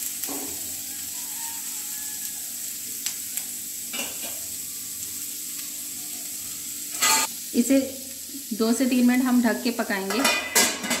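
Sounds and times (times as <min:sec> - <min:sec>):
vegetables sizzling in oil: 0:00.0 - 0:11.0
metal spatula scraping pan: 0:06.9 - 0:07.3.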